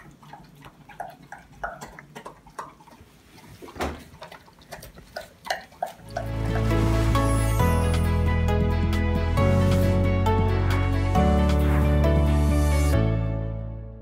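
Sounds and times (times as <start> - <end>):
dog chewing and lapping food: 0.0 - 7.6
soft music: 6.0 - 14.0.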